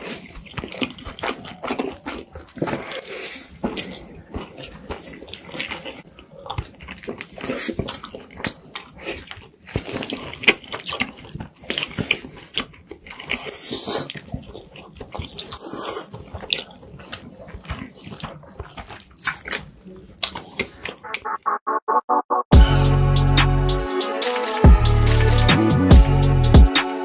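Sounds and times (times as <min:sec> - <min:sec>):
bun being bitten: 0:00.0 - 0:21.1
spaghetti slurped and chewed: 0:00.0 - 0:21.1.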